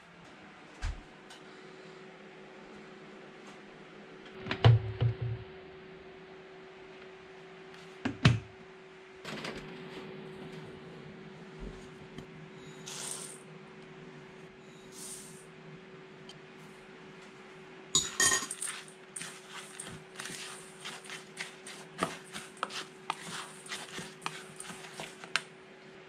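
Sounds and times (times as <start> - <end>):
spatula scraping bowl sides: 18.5 - 25.4.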